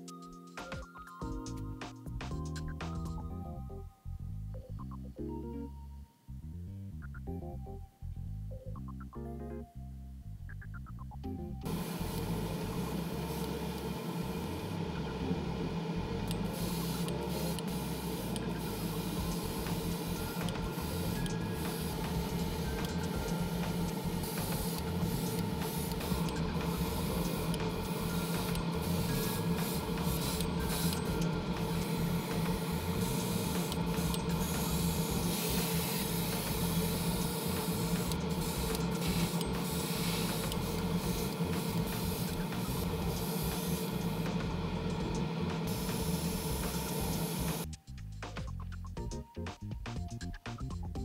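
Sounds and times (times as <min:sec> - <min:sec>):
motor hum: 0:10.5 - 0:47.7
airbrush spraying hiss: 0:11.7 - 0:14.7, 0:16.2 - 0:47.7.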